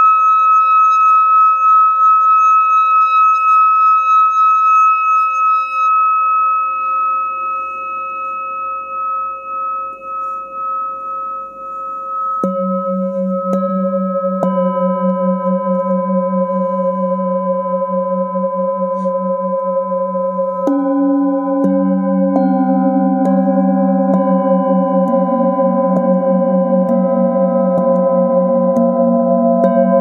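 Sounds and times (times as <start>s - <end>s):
singing bowl ringing: 0.0s - 30.0s
wooden mallet striking bowl: 6.6s - 30.0s.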